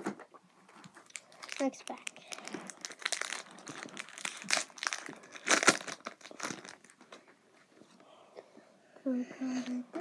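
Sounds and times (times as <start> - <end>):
foil wrapper crinkling: 1.0 - 7.0.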